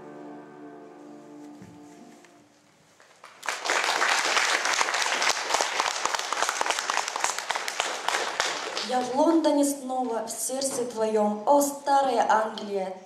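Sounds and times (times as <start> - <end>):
audience applauding: 3.1 - 9.2.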